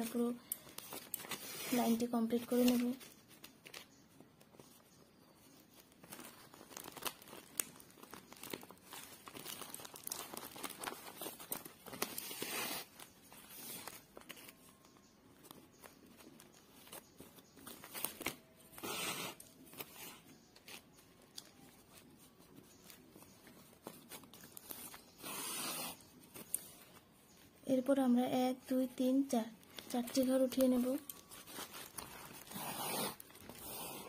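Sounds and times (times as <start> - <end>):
plastic sack crinkling: 5.7 - 15.5, 29.6 - 34.0.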